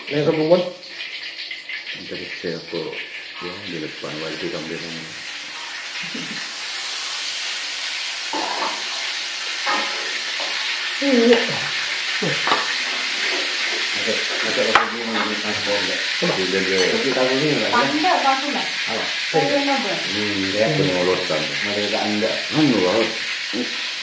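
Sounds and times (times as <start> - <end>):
murmured voices: 14.0 - 23.8.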